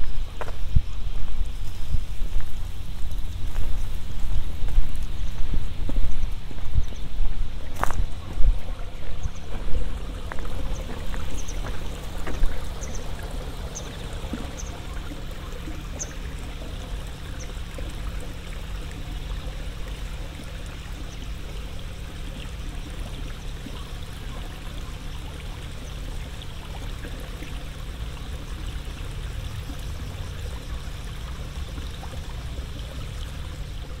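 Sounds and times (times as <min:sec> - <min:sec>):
footsteps on field path: 0:00.0 - 0:13.0
steady rushing hiss: 0:00.0 - 0:18.5.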